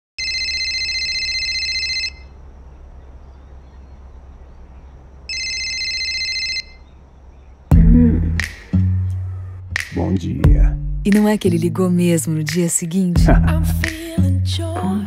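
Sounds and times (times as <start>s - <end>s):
smartphone ringtone trilling: 0.2s - 2.3s, 5.3s - 6.8s.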